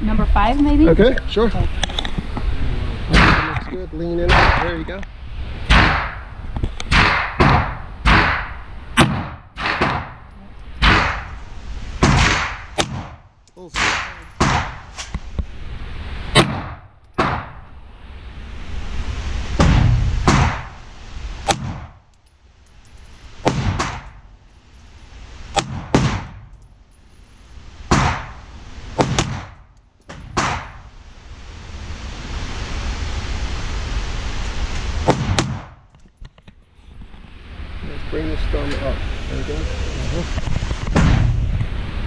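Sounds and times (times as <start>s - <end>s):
rushing hiss: 17.4s - 22.1s, 30.4s - 35.9s.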